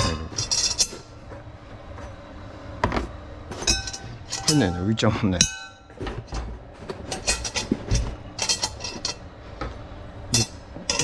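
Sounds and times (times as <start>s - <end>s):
metal clinking in cast-iron pot: 0.0s - 1.0s, 3.6s - 5.9s, 7.1s - 9.2s, 10.3s - 11.0s.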